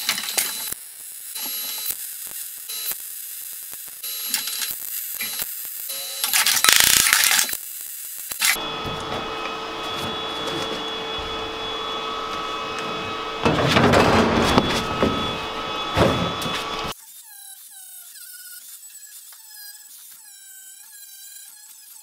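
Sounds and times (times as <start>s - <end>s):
welding arc crackle: 0.0s - 8.6s
steady hum with tones: 8.5s - 16.9s.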